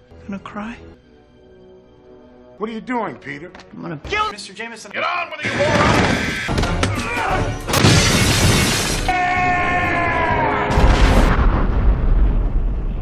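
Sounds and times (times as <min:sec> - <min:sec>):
crash or shatter: 0:07.7 - 0:09.1
deep rumbling boom: 0:10.7 - 0:13.0.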